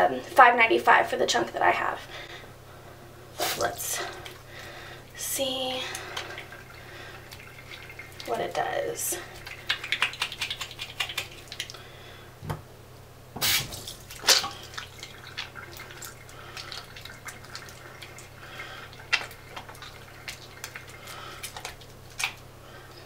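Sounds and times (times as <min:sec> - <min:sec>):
dripping water: 0:03.7 - 0:11.9, 0:13.6 - 0:22.4
hands lathering soap: 0:05.9 - 0:11.8, 0:13.4 - 0:22.4
wet slaps: 0:09.4 - 0:11.8, 0:13.4 - 0:14.6.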